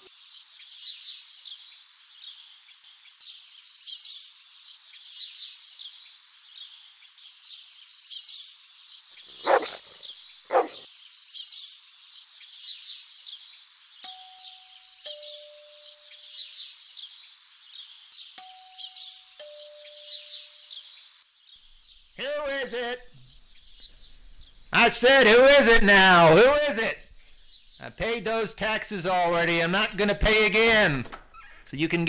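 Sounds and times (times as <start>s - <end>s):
songbirds chirping: 0.0s - 32.0s
doorbell chime: 14.1s - 15.9s, 18.4s - 20.4s.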